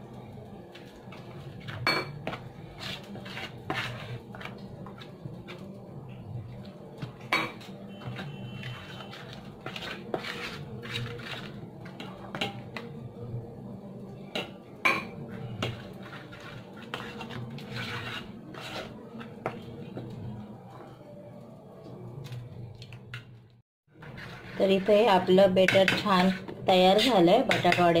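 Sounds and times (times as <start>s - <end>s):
spoon scraping metal bowl: 1.1s - 5.7s, 7.3s - 12.9s, 15.3s - 19.7s, 24.0s - 28.0s.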